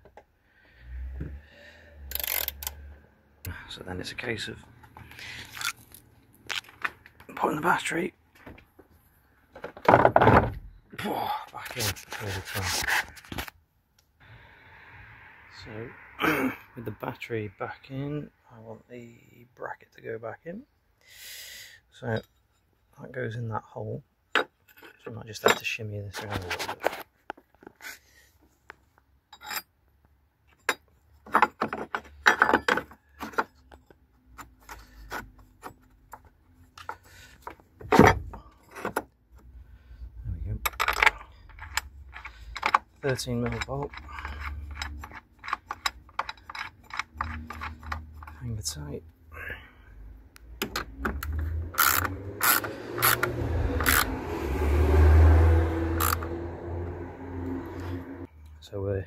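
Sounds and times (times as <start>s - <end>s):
ratchet clicking: 2.1s - 2.8s, 51.2s - 54.1s, 56.0s - 56.3s.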